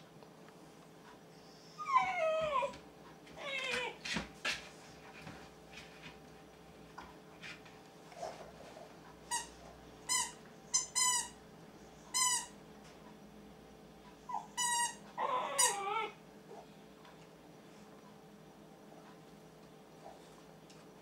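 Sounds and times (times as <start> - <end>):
puppy howling: 1.7 - 2.8, 3.4 - 4.0, 15.2 - 16.2.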